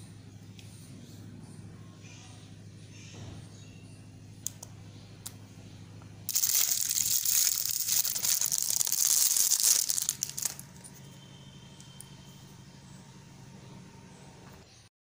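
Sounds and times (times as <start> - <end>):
plastic packaging crinkling: 6.3 - 10.9.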